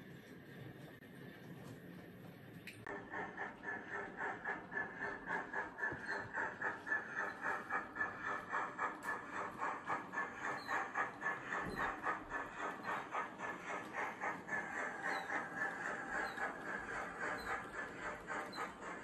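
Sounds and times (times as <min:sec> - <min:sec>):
steam locomotive chuffing: 0:02.8 - 0:19.0.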